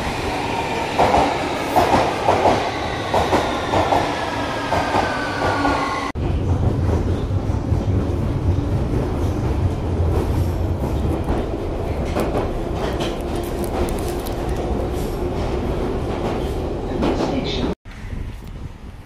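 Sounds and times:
train low rumble: 4.7s - 19.0s.

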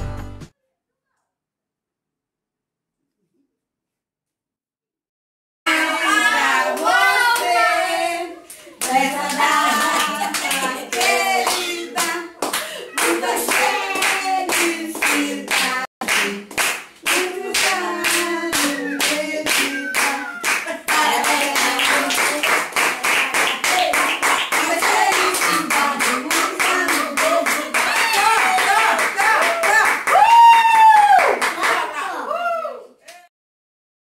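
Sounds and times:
rhythmic hand-clapping: 5.7s - 7.7s, 8.4s - 32.0s
voices singing: 5.7s - 29.5s.

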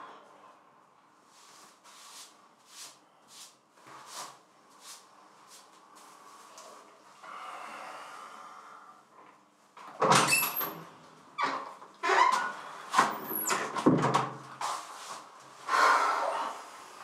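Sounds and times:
door squeak: 10.0s - 10.8s, 11.4s - 13.8s.

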